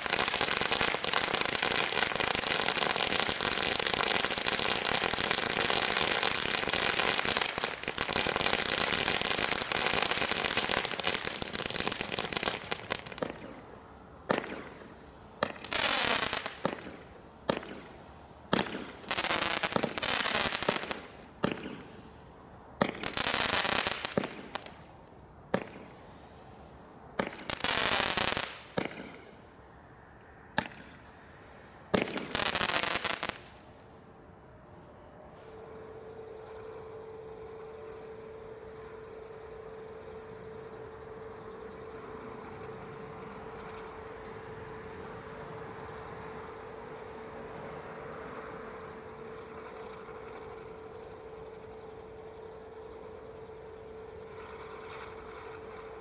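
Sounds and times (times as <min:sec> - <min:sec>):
fireworks crackling: 0:00.0 - 0:22.0, 0:22.8 - 0:24.9, 0:27.2 - 0:29.2, 0:31.9 - 0:33.6.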